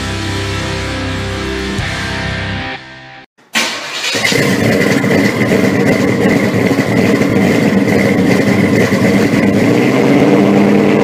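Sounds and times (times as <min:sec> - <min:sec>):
car engine idling: 0:03.7 - 0:11.0.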